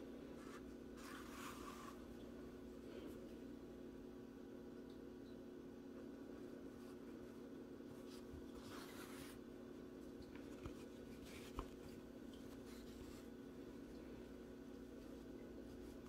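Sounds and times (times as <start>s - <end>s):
steady low hum: 0.0s - 16.0s
yarn rustling through stitches: 0.3s - 2.1s.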